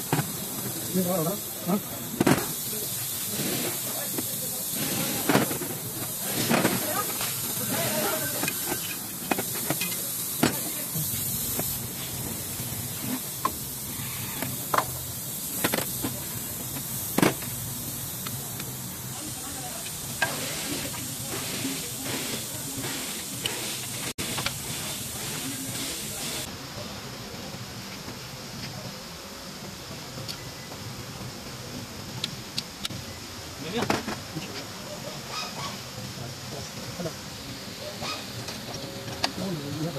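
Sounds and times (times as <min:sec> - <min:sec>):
steady hiss: 0:00.0 - 0:39.9.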